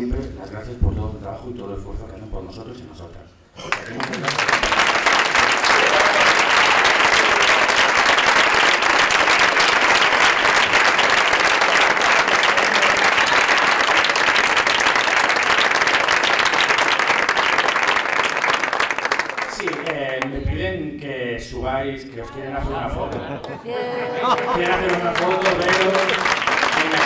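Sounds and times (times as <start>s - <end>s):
audience applauding: 3.6s - 20.3s, 24.2s - 27.0s.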